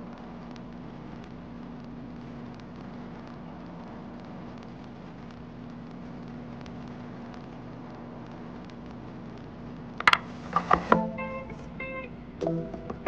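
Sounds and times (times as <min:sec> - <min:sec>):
low hum and hiss: 0:00.0 - 0:13.0
wooden knocks and clacks: 0:10.0 - 0:11.0.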